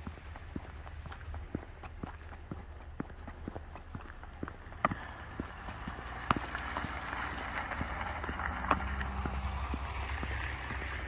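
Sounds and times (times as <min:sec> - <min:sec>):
footsteps on wet pavement: 0:00.0 - 0:11.0
low engine rumble: 0:00.0 - 0:11.0
tyres hissing on wet road: 0:04.1 - 0:11.0.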